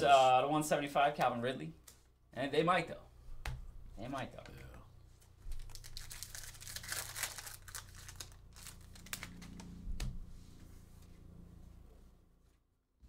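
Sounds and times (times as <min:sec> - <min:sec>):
card pack wrapper tearing and crinkling: 0:05.5 - 0:09.7.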